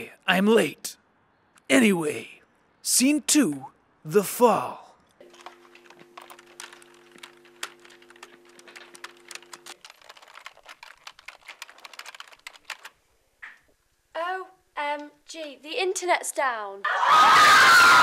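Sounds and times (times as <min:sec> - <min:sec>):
keyboard typing clicks: 0:05.3 - 0:13.6.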